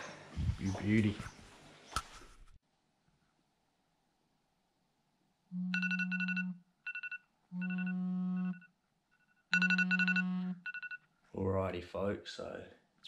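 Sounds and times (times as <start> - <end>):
phone alarm rapid beeping: 5.7 - 11.0.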